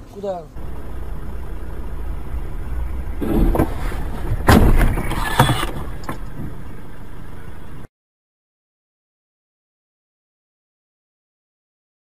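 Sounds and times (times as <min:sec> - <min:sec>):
vehicle engine rumble: 0:00.0 - 0:07.9.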